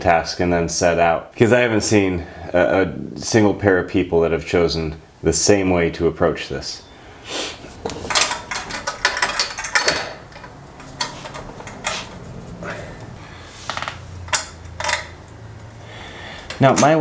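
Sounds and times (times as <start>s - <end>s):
tools knocking on metal pipes: 7.9s - 12.1s.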